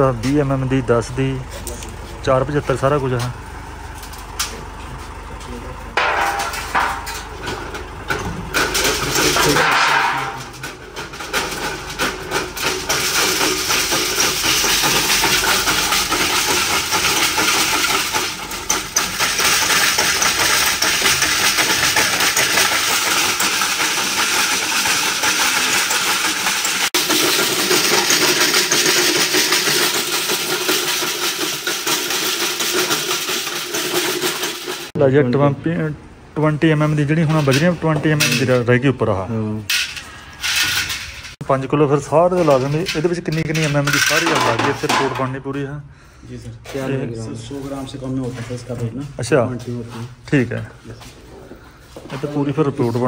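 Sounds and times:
gravel rattling in sieves: 0:08.6 - 0:35.0, 0:42.2 - 0:45.2.

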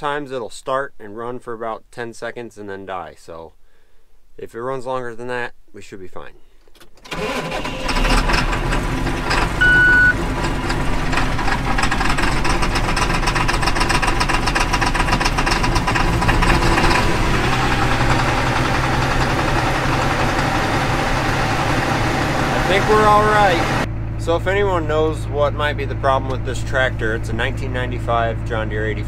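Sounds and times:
diesel tractor engine running: 0:07.0 - 0:29.0
short electronic beep: 0:09.6 - 0:10.2.

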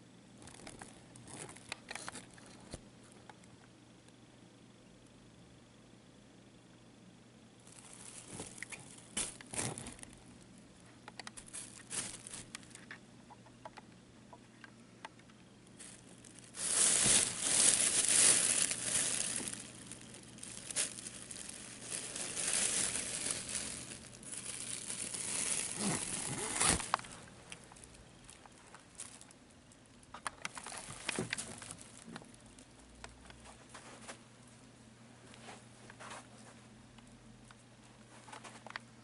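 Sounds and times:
cat play tunnel crinkling: 0:07.6 - 0:10.2, 0:11.4 - 0:13.0, 0:15.8 - 0:32.7.

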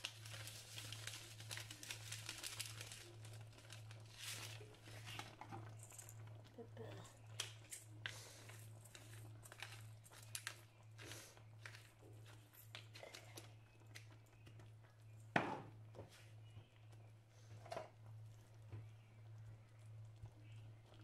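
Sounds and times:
pepper mill grinding: 0:00.0 - 0:06.2, 0:08.5 - 0:12.9.

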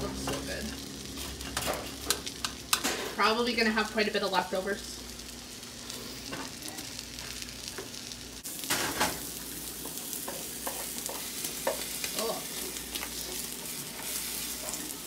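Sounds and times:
eggs and sausage sizzling in pan: 0:00.0 - 0:15.0
spatula scraping and tapping pan: 0:09.8 - 0:12.1.

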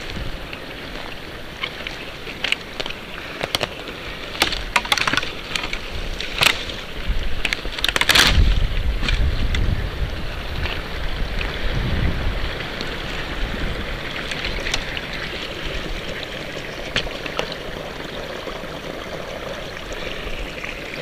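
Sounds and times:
twigs cracking and snapping: 0:01.6 - 0:09.6
low rumble on microphone: 0:08.2 - 0:15.0.

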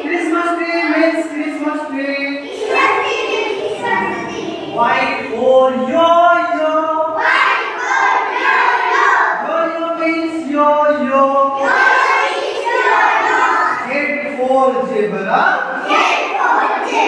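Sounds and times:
children singing together: 0:02.4 - 0:05.4, 0:07.1 - 0:09.5, 0:11.5 - 0:13.9, 0:15.6 - 0:17.0
man singing: 0:04.8 - 0:07.2, 0:09.4 - 0:11.6.

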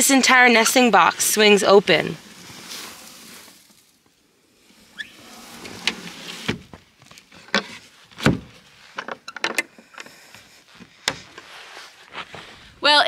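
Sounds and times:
metal latch clicks: 0:09.0 - 0:10.1.

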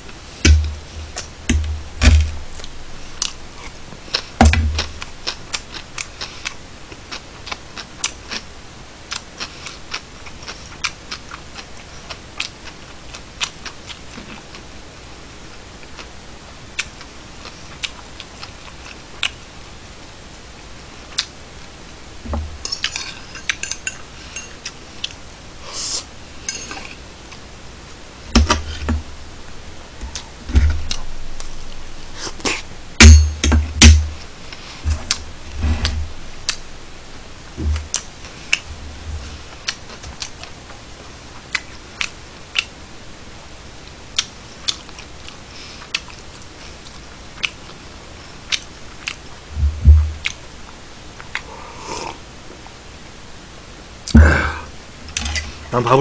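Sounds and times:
cutlery clinking on plates: 0:26.5 - 0:26.9.

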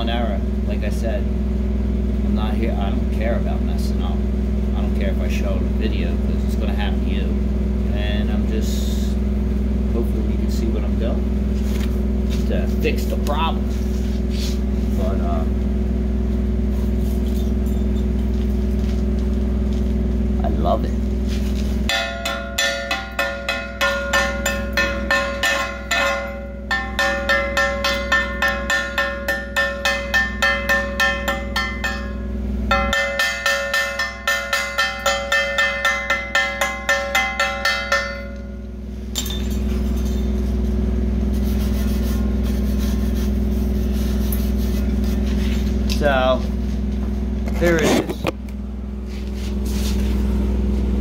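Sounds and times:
steady low hum: 0:00.0 - 0:51.0
hammer striking ringing steel: 0:21.9 - 0:40.7.

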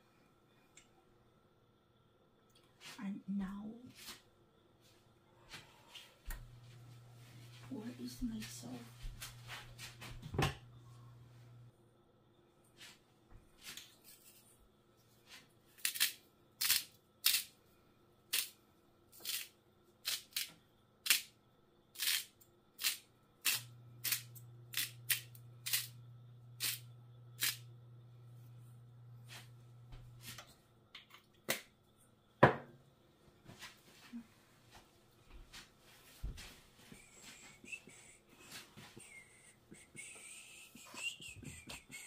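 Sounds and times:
low steady hum: 0:00.0 - 0:15.7, 0:23.3 - 0:42.0
hot oil popping: 0:26.6 - 0:27.7.

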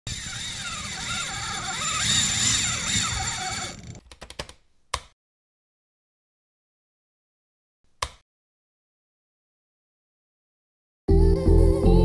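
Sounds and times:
fishing reel drag screaming: 0:00.0 - 0:04.0.

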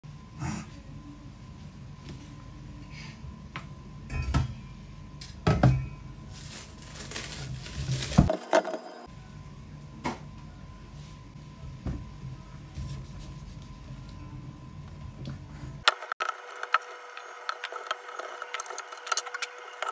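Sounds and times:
plastic wrap crinkling: 0:06.3 - 0:08.7.

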